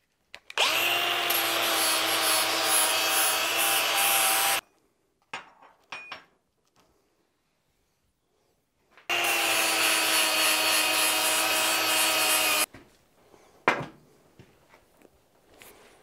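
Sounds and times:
angle grinder with wire wheel on steel: 0.6s - 4.6s, 9.1s - 12.7s.

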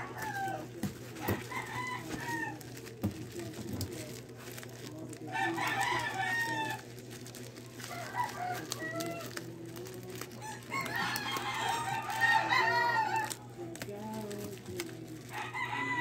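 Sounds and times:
rooster crowing: 0.0s - 2.7s, 5.3s - 6.8s, 7.8s - 9.4s, 10.4s - 13.4s, 15.3s - 16.0s.

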